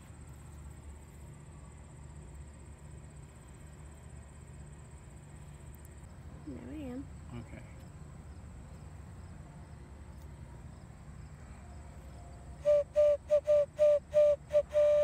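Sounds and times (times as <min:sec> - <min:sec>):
clay whistle short toots: 0:12.6 - 0:15.0.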